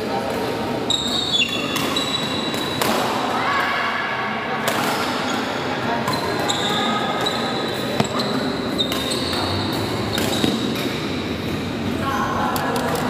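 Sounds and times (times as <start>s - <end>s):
large hall noise: 0.0s - 13.0s
shoes squeaking on court: 5.3s - 11.1s
rackets striking shuttlecock: 7.7s - 11.6s.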